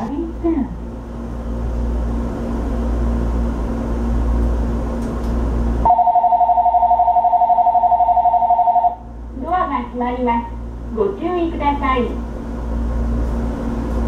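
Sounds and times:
electric train hum: 0.0s - 14.0s
two-tone electronic door bell: 5.9s - 9.0s.

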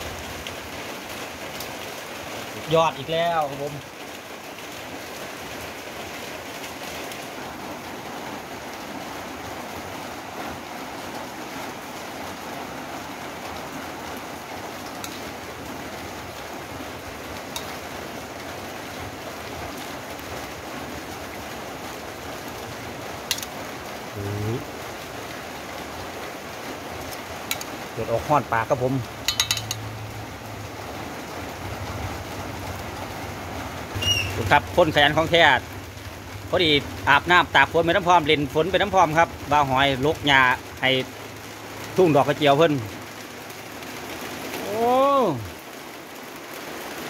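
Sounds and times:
steady rain: 0.0s - 47.0s
spoon clicking on metal bowl: 29.3s - 29.9s.

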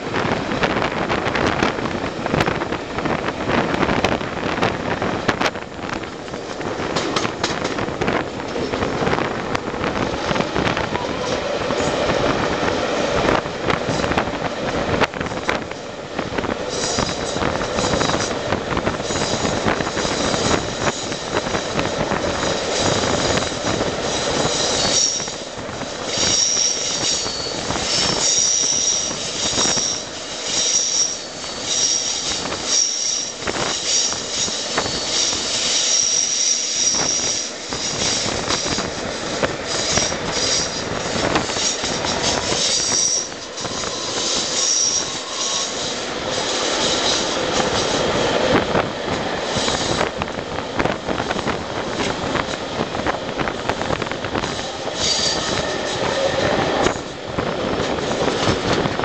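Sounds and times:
train wheels rumbling on rails: 0.0s - 59.0s
wheel flanges squealing: 22.5s - 38.8s, 39.7s - 48.0s, 54.5s - 57.1s.

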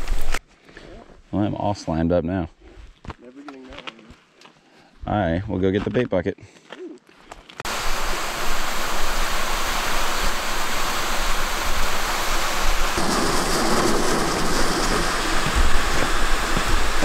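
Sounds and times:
sled scraping over snowy ice: 12.9s - 17.0s.

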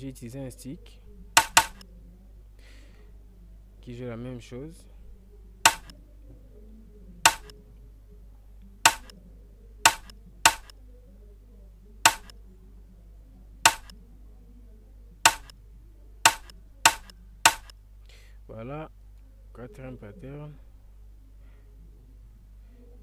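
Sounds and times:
drum stick clicks: 1.4s - 1.8s, 5.7s - 5.9s, 7.3s - 7.5s, 8.9s - 9.1s, 9.9s - 10.7s, 12.1s - 12.3s, 13.7s - 13.9s, 15.3s - 15.5s, 16.3s - 17.7s.

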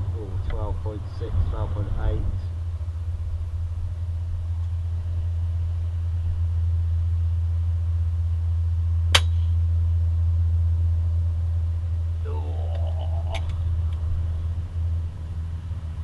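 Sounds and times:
wind on microphone: 0.0s - 6.6s
air rifle shot: 9.1s - 9.5s.

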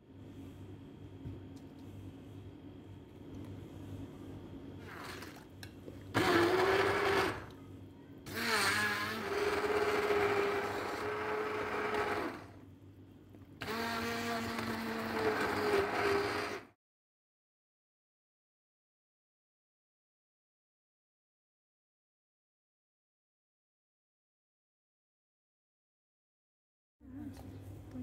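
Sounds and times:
stick blender humming: 4.8s - 7.6s, 8.3s - 12.6s, 13.6s - 16.7s.

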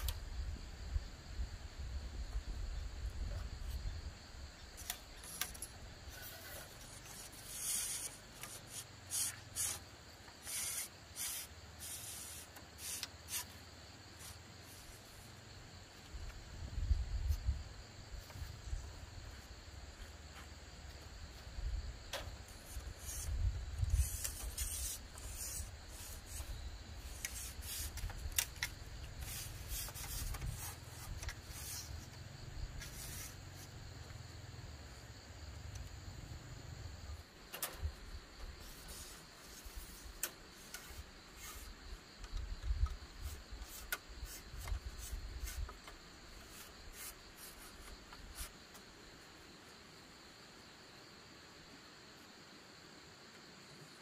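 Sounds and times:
scraping strokes: 4.8s - 13.6s, 22.4s - 33.7s, 38.5s - 41.9s, 43.1s - 48.6s.

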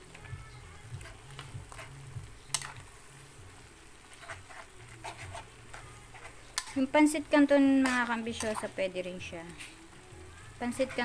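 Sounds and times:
metal spoon scraping a wok: 1.0s - 2.9s, 4.0s - 7.0s, 7.7s - 9.8s.

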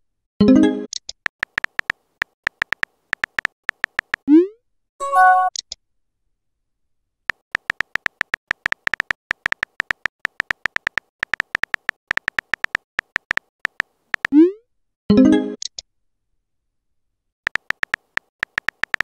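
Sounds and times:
phone keyboard tap clicks: 1.2s - 4.2s, 7.3s - 14.3s, 17.5s - 19.0s.

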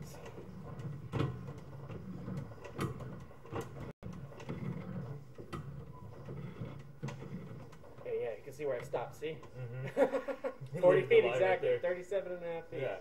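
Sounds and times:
cable clicking and knocking: 0.0s - 9.6s.

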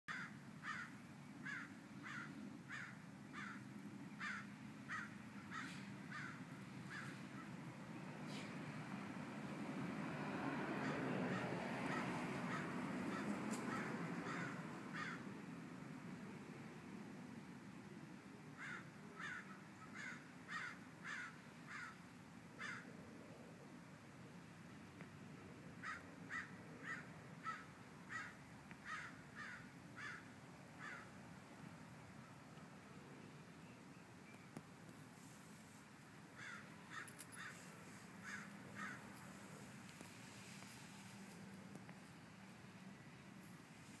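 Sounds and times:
faint background hiss: 12.8s - 44.0s.

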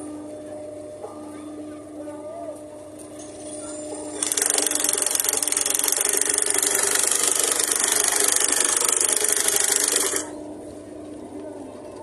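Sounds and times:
loud rough mechanical rattle: 4.2s - 10.4s.

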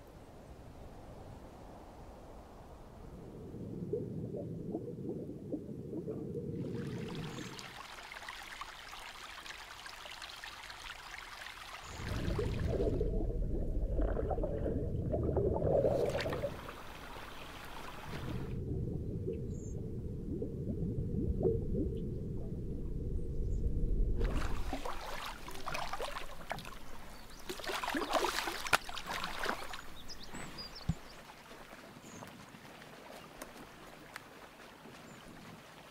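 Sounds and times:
muffled underwater moving water: 3.0s - 8.2s, 11.8s - 35.8s
water splashing: 3.9s - 19.7s, 24.2s - 35.9s.

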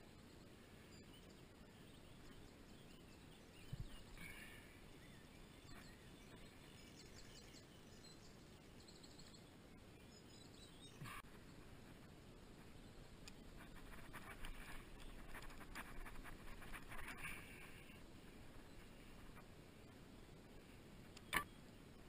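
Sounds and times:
faint bird chirps: 0.1s - 11.6s.

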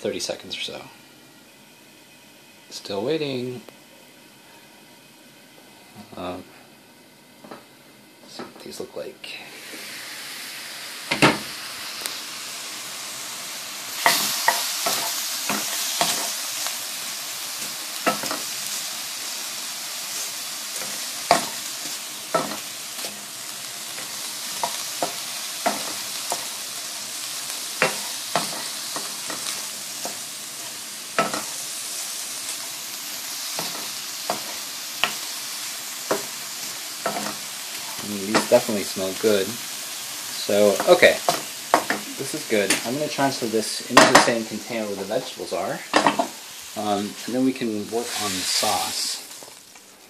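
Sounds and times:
shrimp sizzling in hot oil: 7.0s - 50.0s
wooden spatula tapping a pan: 40.8s - 42.1s.

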